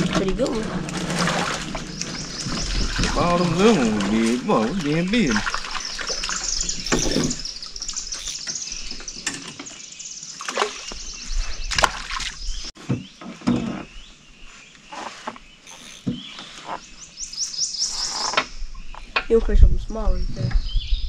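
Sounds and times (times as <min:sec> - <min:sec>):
birds chirping: 0:00.0 - 0:21.0.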